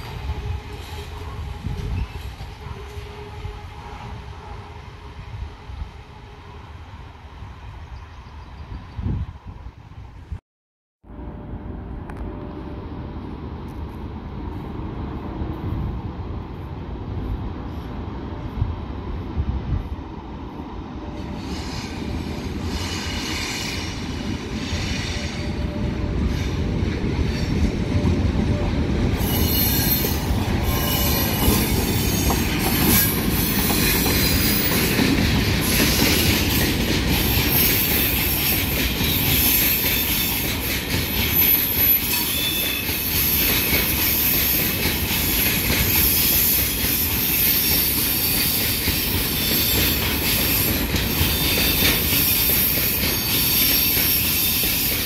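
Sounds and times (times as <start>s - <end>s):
wheels squealing on rails: 0.0s - 5.8s, 21.0s - 55.0s
freight train passing: 0.0s - 10.4s, 11.0s - 55.0s.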